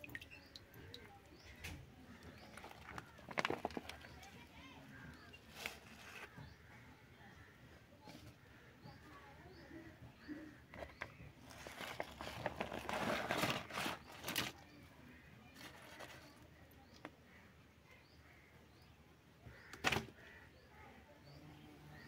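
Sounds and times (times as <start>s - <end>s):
plastic bag crinkling: 2.5s - 4.3s, 11.4s - 14.6s.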